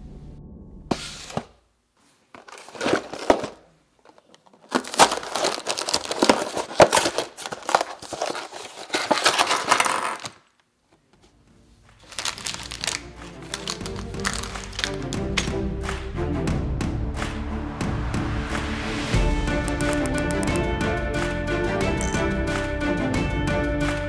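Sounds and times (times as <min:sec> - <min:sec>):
plastic bags crinkling: 0:02.2 - 0:10.7, 0:12.0 - 0:15.5
cardboard flap tearing: 0:04.6 - 0:10.5.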